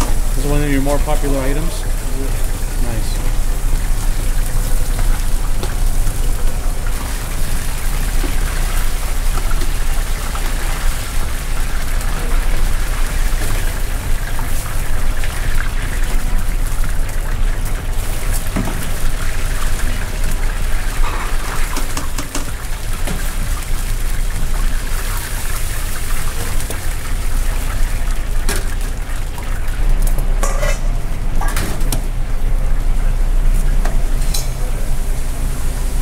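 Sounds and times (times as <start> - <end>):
oil sizzling and bubbling in fryer: 0.0 - 36.0
metal clinks of fryer basket: 30.4 - 31.8.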